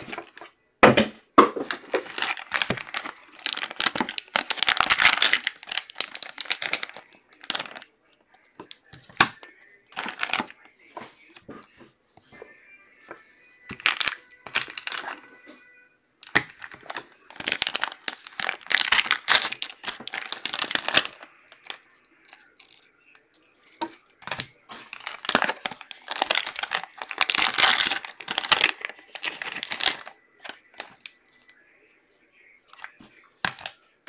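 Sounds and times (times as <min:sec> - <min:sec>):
foil wrapper tearing and crinkling: 0:02.0 - 0:07.8, 0:16.3 - 0:21.2, 0:24.3 - 0:31.1.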